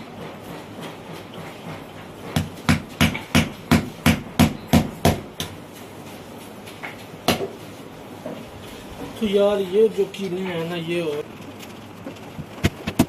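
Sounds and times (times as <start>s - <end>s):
hammer driving nail into wood: 2.3s - 5.6s.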